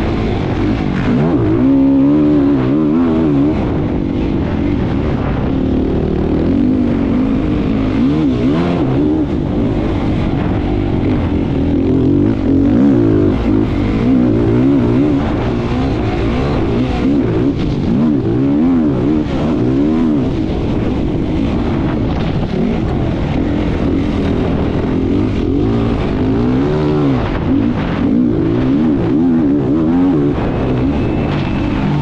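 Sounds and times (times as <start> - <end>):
racing engines revving: 0.0 - 32.0.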